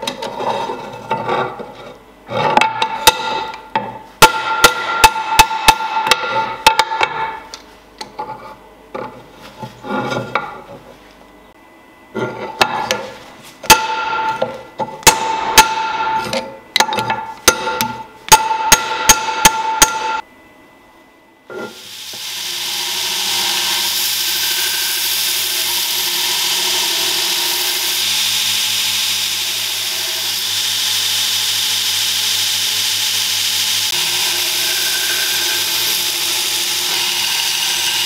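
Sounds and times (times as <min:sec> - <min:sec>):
hammer striking metal on anvil: 0:02.6 - 0:07.4, 0:13.6 - 0:20.2.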